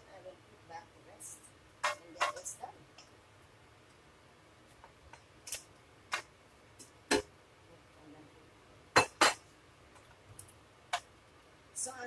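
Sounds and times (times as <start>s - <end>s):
plate and spoon knocking metal pan: 9.0s - 9.4s.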